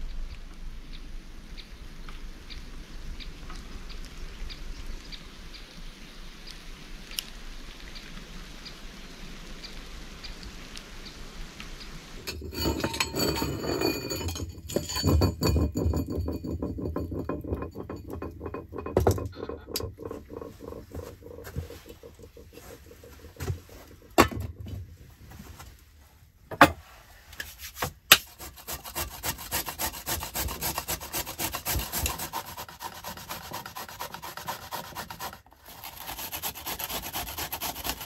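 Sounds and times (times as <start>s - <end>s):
raindrops ticking on leaves: 2.0s - 12.3s
light rain hissing: 2.3s - 12.3s
clattering and rustling: 12.3s - 28.0s.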